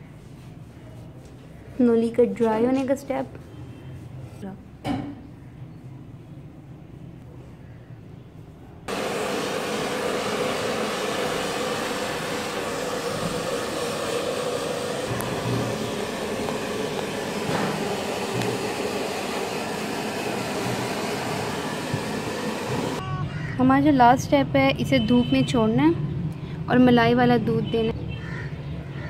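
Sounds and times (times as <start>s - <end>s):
hair dryer running: 8.9s - 23.0s.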